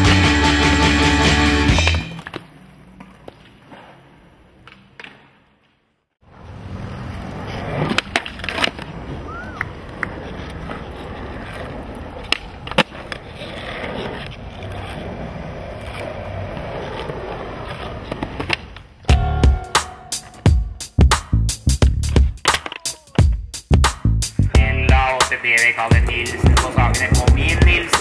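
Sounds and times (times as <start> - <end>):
skateboard wheels rolling: 0.0 - 20.4, 25.0 - 28.0
skateboard clacks: 7.5 - 19.1, 22.4 - 23.2.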